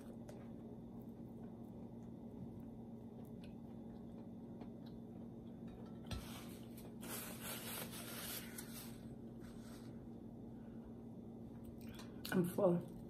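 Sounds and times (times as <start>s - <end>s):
faint steady hum: 0.0s - 13.0s
paper napkin rustling: 6.2s - 10.0s.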